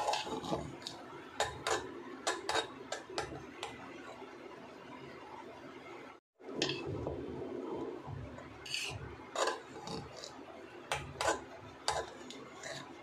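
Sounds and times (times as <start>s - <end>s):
ladle scraping metal pot: 0.0s - 3.8s, 6.6s - 13.0s.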